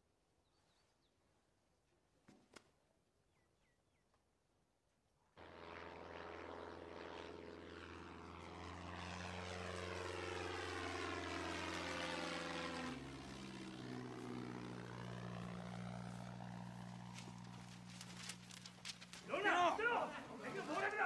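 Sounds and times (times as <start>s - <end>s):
propeller plane engine drone: 5.4s - 21.0s.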